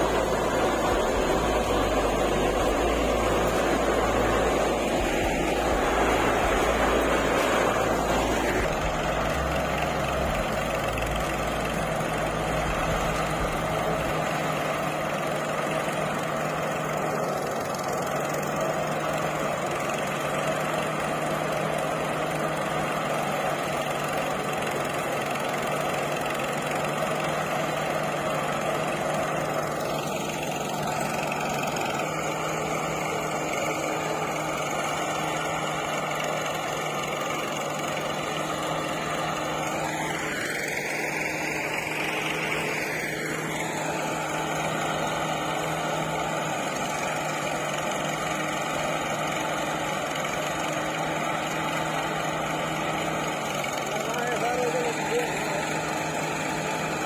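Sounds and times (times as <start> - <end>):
threshing drum churning: 0.0 - 17.1
tractor engine under load: 0.0 - 57.0.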